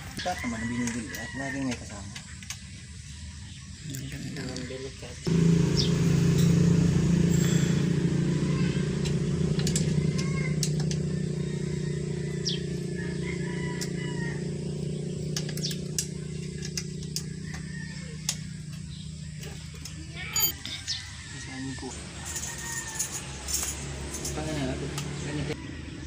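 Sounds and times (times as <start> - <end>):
small engine running: 5.2 - 20.6, 21.4 - 26.0.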